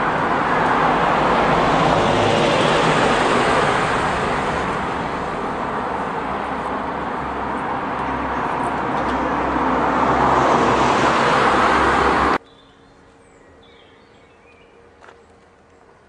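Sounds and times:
road traffic passing: 0.0s - 16.0s.

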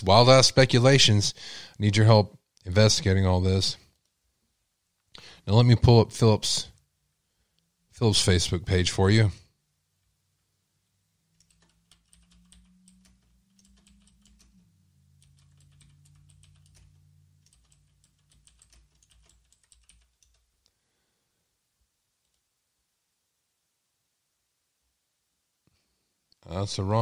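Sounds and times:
faint low hum: 0.0s - 27.0s
keyboard typing: 11.2s - 20.7s.

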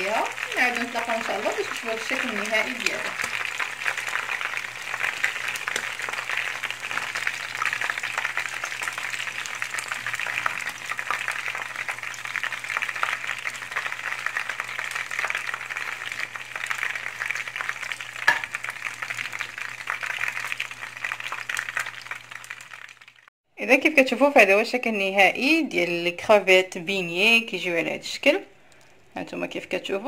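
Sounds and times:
shrimp deep-frying in oil: 0.0s - 23.3s.

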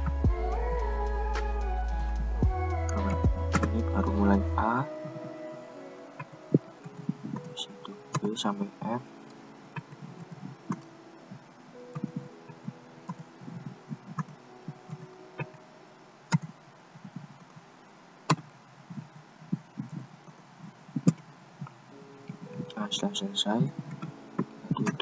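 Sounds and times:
keyboard typing: 6.2s - 8.4s, 9.3s - 15.6s.

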